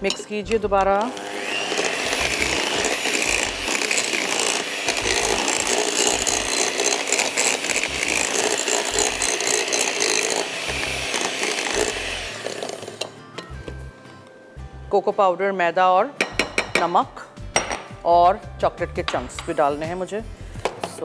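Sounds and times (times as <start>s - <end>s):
electric hand mixer running: 0.9s - 13.1s.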